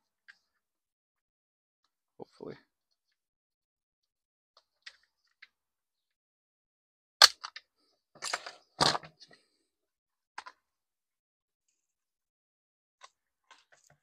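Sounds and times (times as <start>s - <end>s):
plastic parts clacking: 7.2s - 9.4s.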